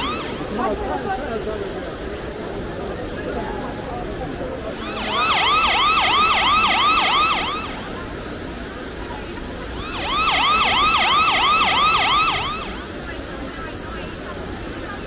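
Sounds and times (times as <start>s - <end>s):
electronic siren yelping: 0.0s - 0.5s, 4.8s - 7.9s, 9.8s - 12.8s.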